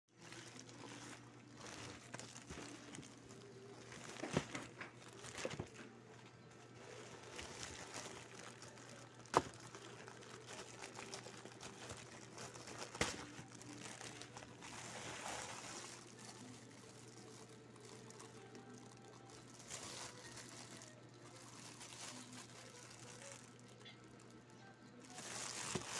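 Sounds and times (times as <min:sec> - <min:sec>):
plastic bag crinkling: 0:00.1 - 0:25.9.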